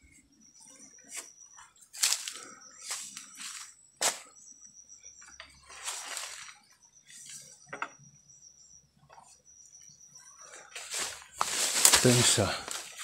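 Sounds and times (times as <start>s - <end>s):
high insect trill: 0.0s - 13.0s
leaves rustling and stems snapping: 11.4s - 13.0s.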